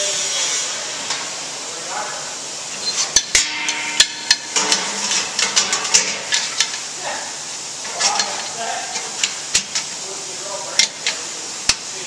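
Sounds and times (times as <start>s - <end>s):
metal lid clanking against frame: 2.8s - 6.8s.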